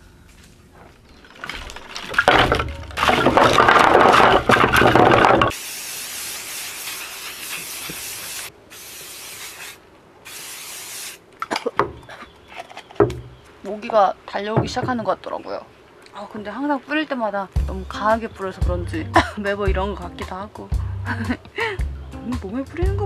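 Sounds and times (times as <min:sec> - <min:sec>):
spray can hissing: 0:05.5 - 0:11.2.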